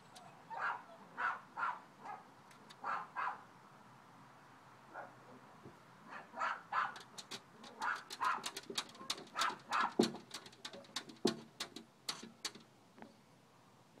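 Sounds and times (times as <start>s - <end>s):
paws and tongue tapping glass: 6.9s - 12.6s.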